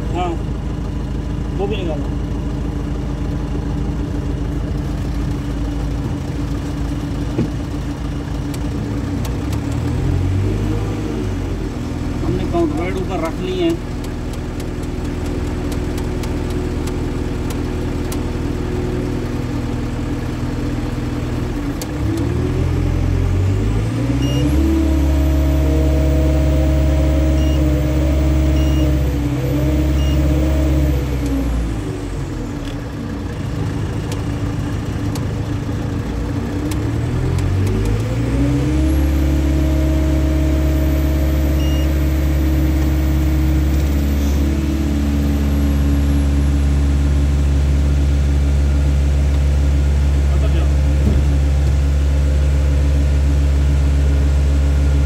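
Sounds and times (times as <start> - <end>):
crane diesel engine revving: 8.7 - 55.0
faint short beeps: 41.6 - 42.0.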